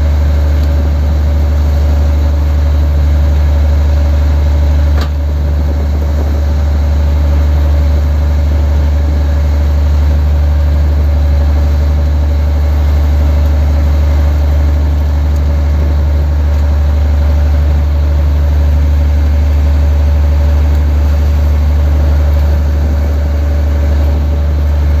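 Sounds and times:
boat engine droning: 0.0 - 25.0
steady hum: 0.0 - 25.0.

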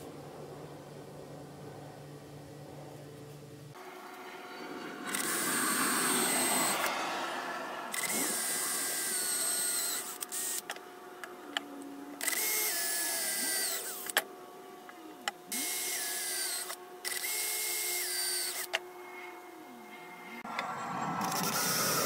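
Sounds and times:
cordless drill boring metal: 3.9 - 7.0, 7.9 - 10.8, 12.2 - 14.3, 15.5 - 19.6.

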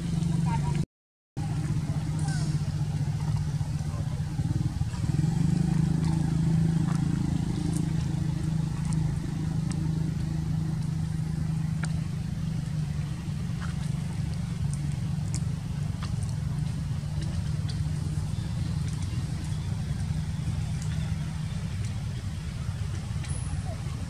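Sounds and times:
low motor hum: 0.0 - 0.8, 1.4 - 24.0.

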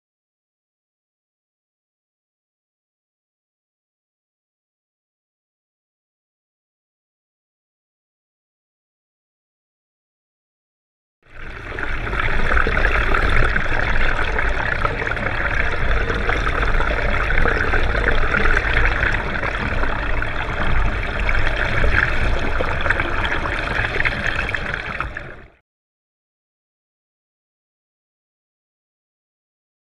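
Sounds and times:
water rushing underwater: 11.3 - 25.6.

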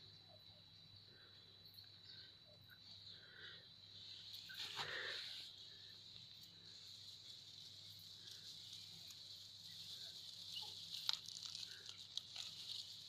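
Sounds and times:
faint high-pitched hiss: 0.0 - 13.0
grass rustling and crackling: 4.1 - 13.0.

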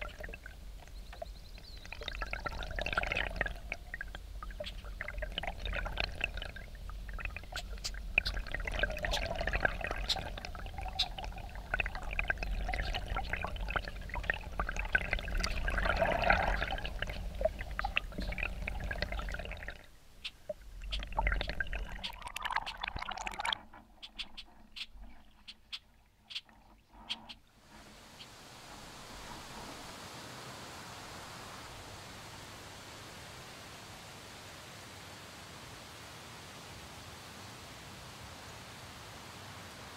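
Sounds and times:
water gurgling and bubbling: 0.0 - 23.8.

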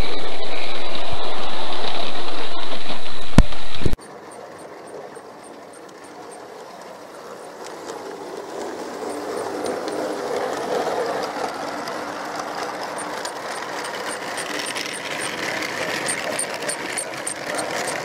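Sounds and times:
model train wheels rattling on track: 4.0 - 18.0
light regular clicking: 7.4 - 18.0.

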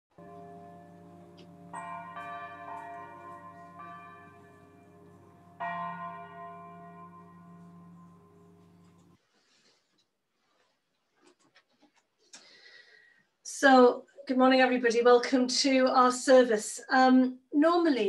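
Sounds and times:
church bells ringing: 0.1 - 9.2.

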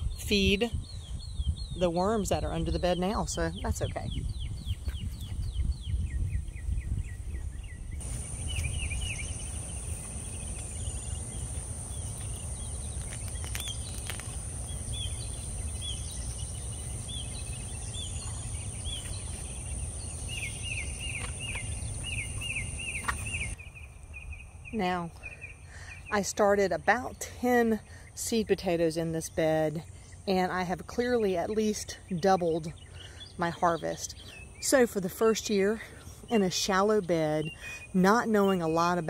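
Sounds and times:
high insect drone: 8.0 - 23.6.

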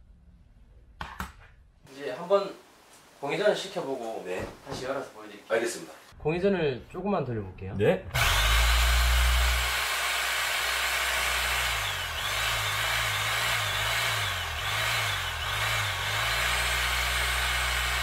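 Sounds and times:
demolition hammer motor running: 8.1 - 18.0.

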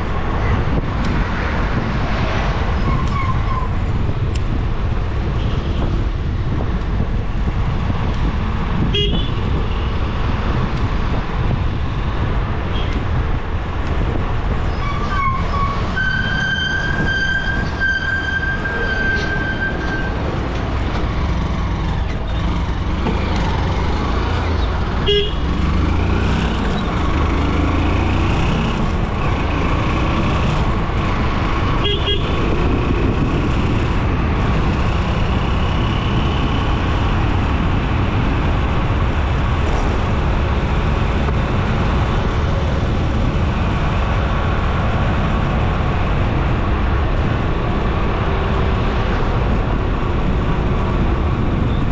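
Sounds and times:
vehicle engine and road rumble: 0.0 - 51.9
vehicle horn blast: 8.9 - 9.4, 25.0 - 25.4, 31.8 - 32.3.

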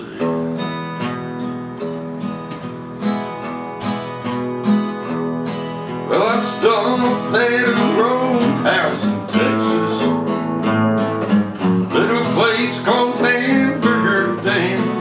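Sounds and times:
acoustic guitars strummed: 0.0 - 15.0
man singing: 6.0 - 10.4, 11.9 - 15.0.

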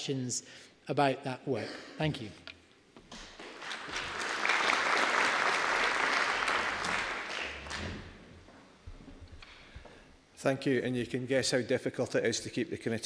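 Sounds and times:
audience applauding: 3.4 - 8.2.

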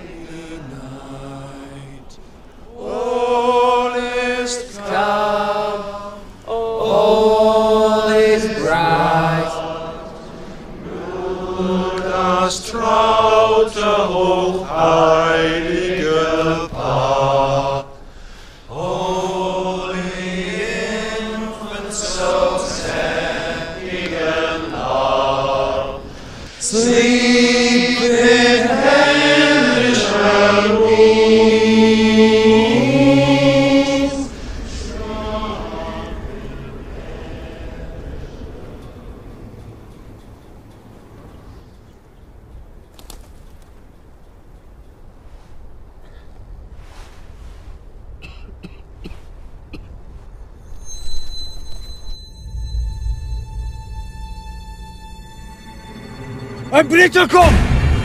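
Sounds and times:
men singing a slow carol: 0.0 - 39.6.

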